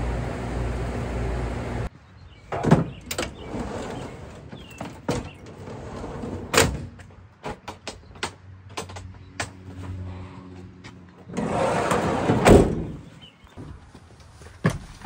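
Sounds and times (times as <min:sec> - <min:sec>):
machine hum: 0:00.0 - 0:01.9.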